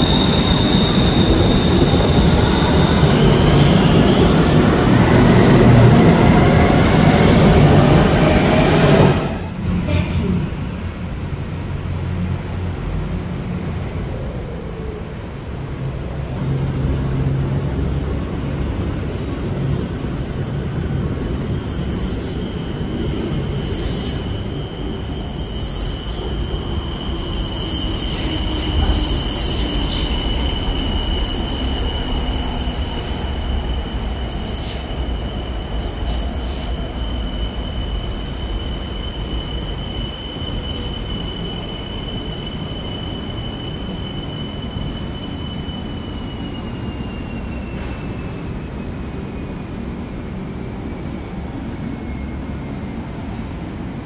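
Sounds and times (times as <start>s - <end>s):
train rumbling on rails: 0.0s - 54.0s
high-pitched wheel squeal: 21.6s - 53.1s.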